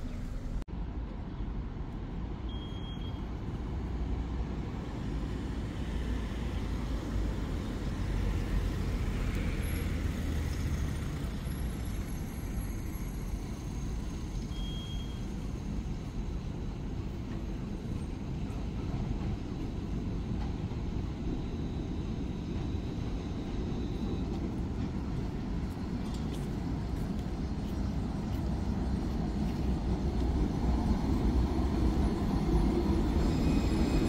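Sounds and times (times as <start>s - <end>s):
street traffic noise: 0.0s - 34.0s
tram approaching: 0.0s - 34.0s
short high beeps: 2.5s - 3.2s.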